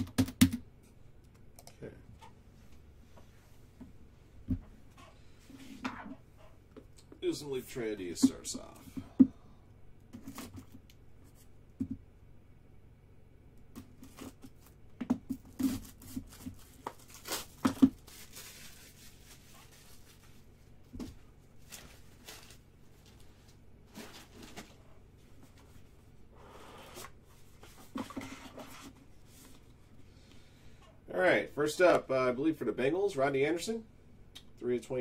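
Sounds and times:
wrapping tearing and crinkling: 0:15.5 - 0:20.5, 0:21.6 - 0:23.2.

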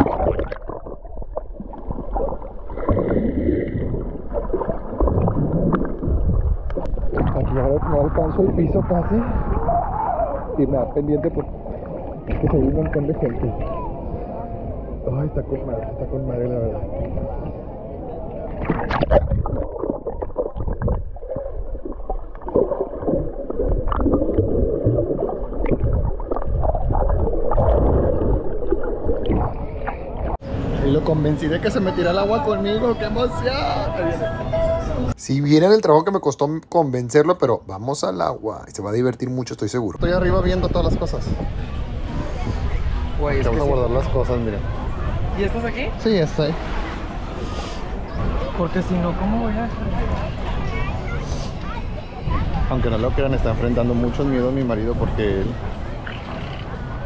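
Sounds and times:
underwater bubbles and clicks: 0:00.0 - 0:08.3, 0:18.5 - 0:30.4
underwater sloshing and gurgling: 0:00.0 - 0:30.8, 0:55.0 - 0:57.0.

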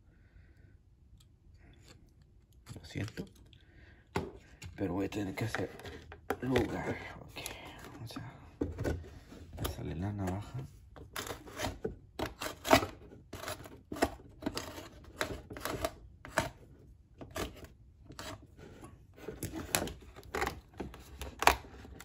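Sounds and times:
box cutter cutting cardboard: 0:11.1 - 0:16.6.

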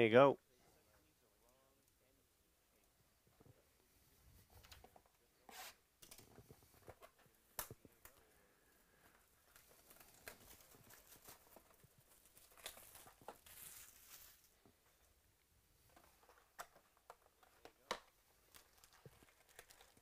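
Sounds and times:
plastic rustling: 0:08.9 - 0:14.7, 0:18.4 - 0:20.0
plastic wrap crinkling and tearing: 0:09.4 - 0:14.6, 0:18.4 - 0:20.0.

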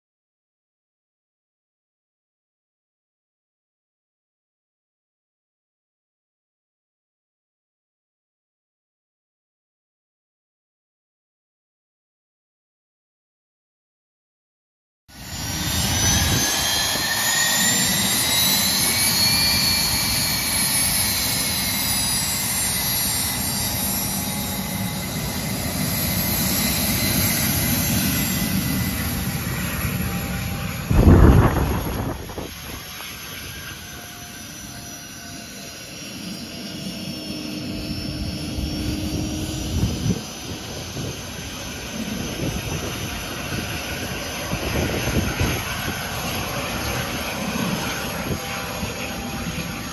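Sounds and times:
jet engines whining: 0:15.1 - 0:49.9
rush of air on microphone: 0:30.9 - 0:33.7.

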